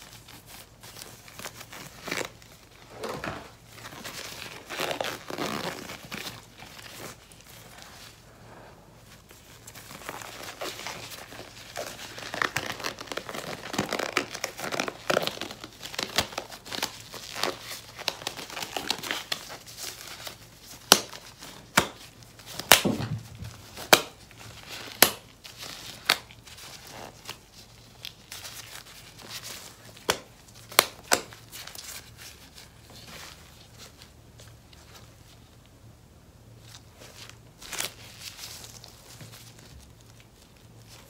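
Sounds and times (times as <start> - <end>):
rubber gloves crinkling: 0.0 - 41.0
rubber glove snaps: 20.9 - 23.1, 25.0 - 25.2.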